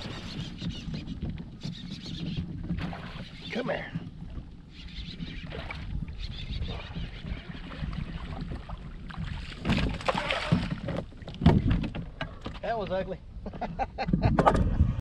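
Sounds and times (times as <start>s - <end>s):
fish thrashing and splashing: 6.7s - 11.8s.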